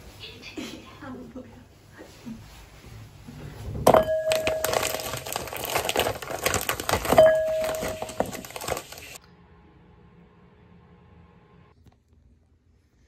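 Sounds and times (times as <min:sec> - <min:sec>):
plastic snack packet crinkling: 0:04.3 - 0:09.2.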